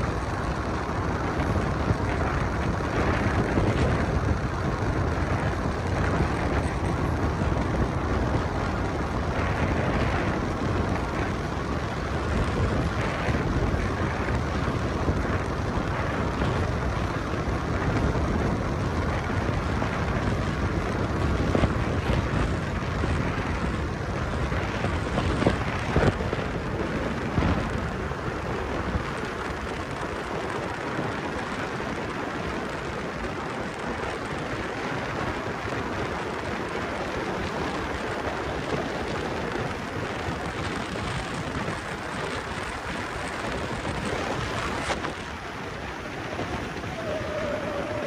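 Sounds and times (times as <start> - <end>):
tyre and road noise: 0.0 - 48.0
wind rushing over microphone: 0.0 - 48.0.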